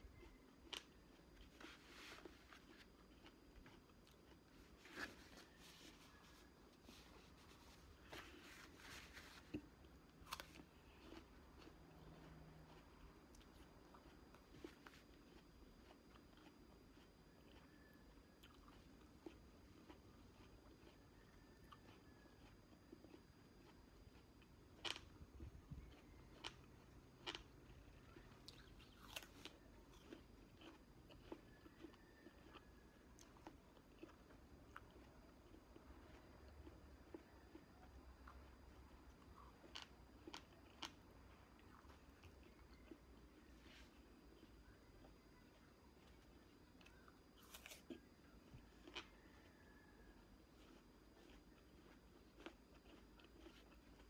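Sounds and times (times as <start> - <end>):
chewing soft fruit: 0.0 - 54.0.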